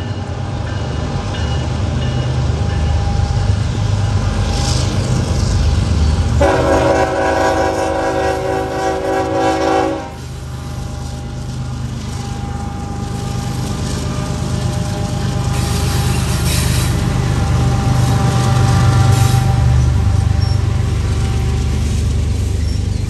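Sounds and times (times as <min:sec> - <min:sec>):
diesel locomotive rumbling: 0:00.0 - 0:23.0
locomotive horn: 0:06.4 - 0:21.7.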